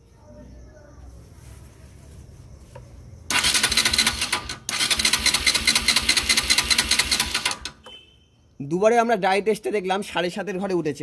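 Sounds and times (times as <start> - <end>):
electric starter cranking engine: 3.3 - 7.8.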